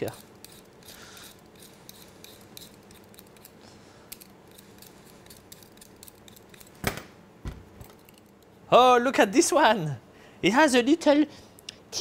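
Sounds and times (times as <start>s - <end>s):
vegetable peeler scraping potato: 0.0s - 6.8s.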